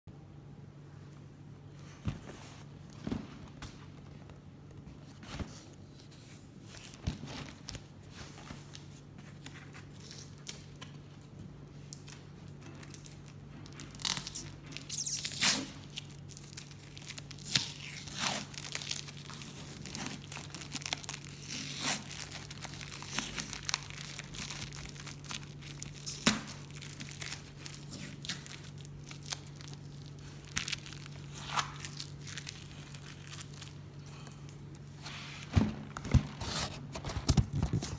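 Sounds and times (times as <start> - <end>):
packing tape ripping off cardboard: 13.8 - 33.8.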